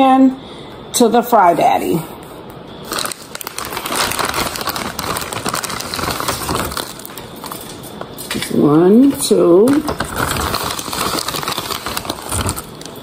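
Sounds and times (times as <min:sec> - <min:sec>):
plastic bag crinkling: 0:02.8 - 0:13.0.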